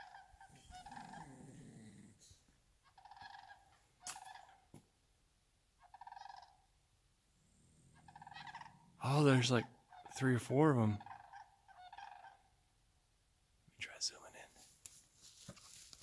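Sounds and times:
distant turkeys gobbling: 0.0s - 1.7s, 2.8s - 4.8s, 5.8s - 6.7s, 7.9s - 10.2s, 10.8s - 12.6s.

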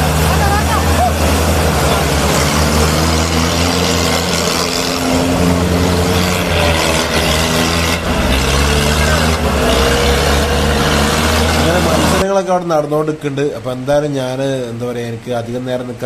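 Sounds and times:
off-road vehicle engine running: 0.0s - 12.3s
dense noisy wash: 0.0s - 16.0s.

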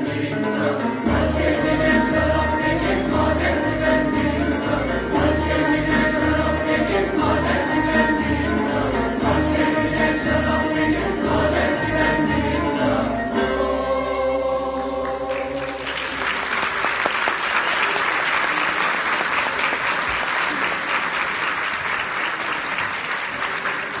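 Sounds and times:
choir with instruments: 0.0s - 16.1s
audience applause: 15.3s - 24.0s.

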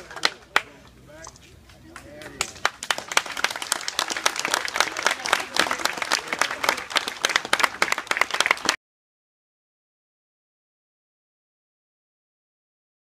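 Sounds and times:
crowd applauding: 0.0s - 0.7s, 1.9s - 8.8s.

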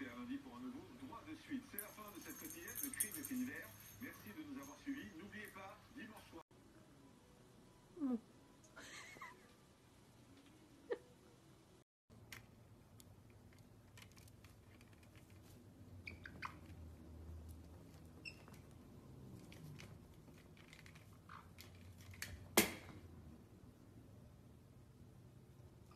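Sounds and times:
parrots tapping and scratching: 12.3s - 22.6s
squeaky parrot chirps: 16.0s - 16.7s.

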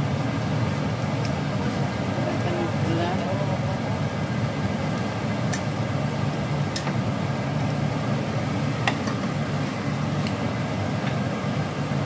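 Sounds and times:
sauce bubbling in frying pan: 3.7s - 12.0s.

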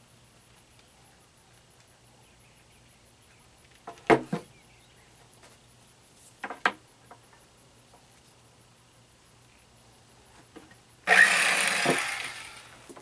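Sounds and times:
jigsaw knocking on plywood: 11.1s - 12.3s.

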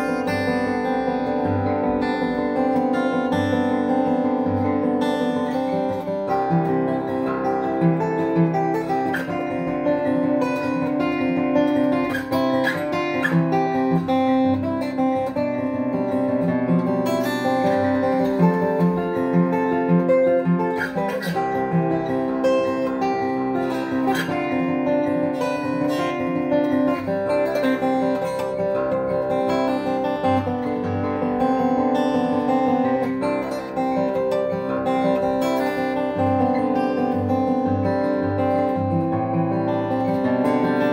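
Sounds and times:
acoustic guitar playing: 0.0s - 40.9s.

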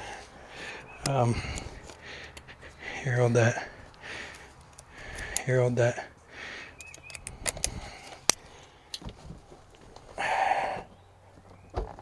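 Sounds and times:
parts and screws rattling: 6.6s - 10.2s.

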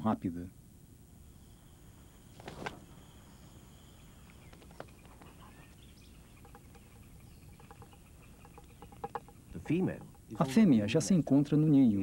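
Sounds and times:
high insect drone: 0.0s - 12.0s
brief rustle: 2.4s - 2.9s.

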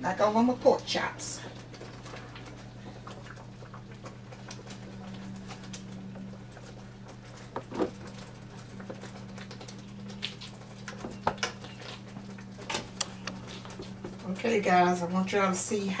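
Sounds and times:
low hum: 0.0s - 16.0s
gravy bubbles popping: 1.5s - 12.6s.

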